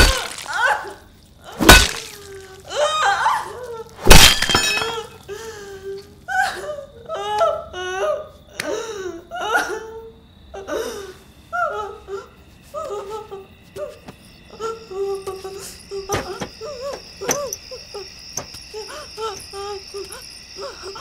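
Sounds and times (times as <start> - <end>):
woman crying hysterically: 0.0 - 4.0, 4.6 - 13.5.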